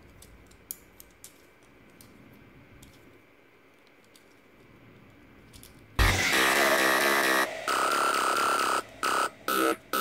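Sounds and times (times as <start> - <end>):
plastic toy parts clicking: 0.0 - 4.7, 5.4 - 5.9.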